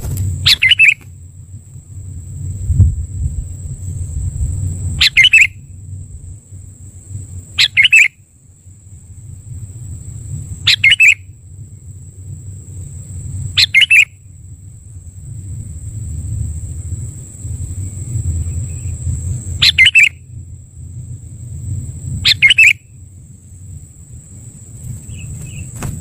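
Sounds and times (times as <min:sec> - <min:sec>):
bird calling: 0:00.0 - 0:01.2, 0:05.0 - 0:05.7, 0:07.5 - 0:08.2, 0:10.6 - 0:11.4, 0:13.5 - 0:14.2, 0:19.6 - 0:20.3, 0:22.2 - 0:22.9, 0:24.9 - 0:26.0
high-pitched whine: 0:00.0 - 0:26.0
low rumble: 0:00.0 - 0:26.0.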